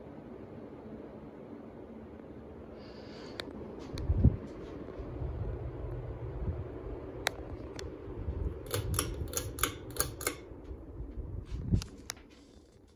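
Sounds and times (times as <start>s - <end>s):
ceiling fan humming: 0.0s - 12.9s
sharp clicks: 8.6s - 10.5s.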